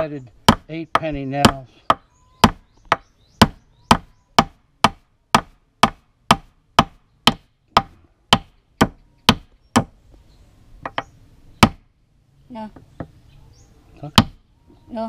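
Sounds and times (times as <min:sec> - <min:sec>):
hammer striking nail into wood: 0:00.5 - 0:09.9, 0:10.8 - 0:11.8, 0:14.1 - 0:14.4.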